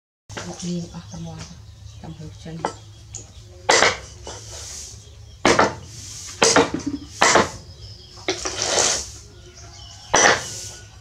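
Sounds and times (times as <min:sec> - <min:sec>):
knife chopping on wooden block: 0:05.5 - 0:05.8, 0:10.2 - 0:10.5.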